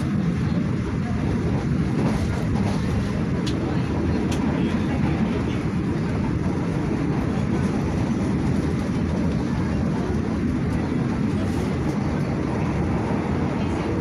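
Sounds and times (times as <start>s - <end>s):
train carriage rumble: 0.0s - 14.0s.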